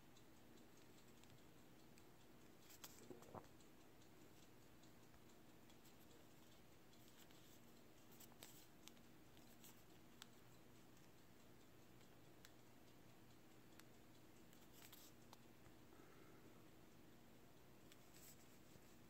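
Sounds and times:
faint steady hum: 0.0 - 19.0
soft clicks: 0.1 - 15.9, 17.0 - 19.0.

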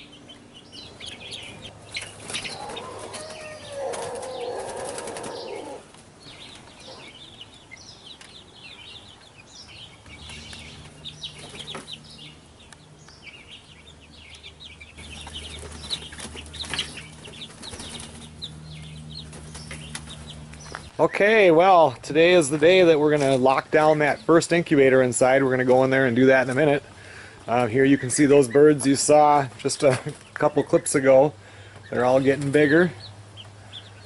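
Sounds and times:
chicks peeping: 0.0 - 34.0
wings flapping: 1.9 - 6.8, 10.0 - 12.0, 15.0 - 20.8.

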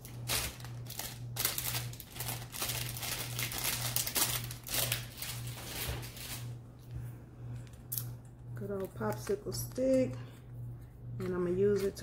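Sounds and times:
plastic crinkling: 0.0 - 6.5
steady low hum: 0.0 - 12.0.

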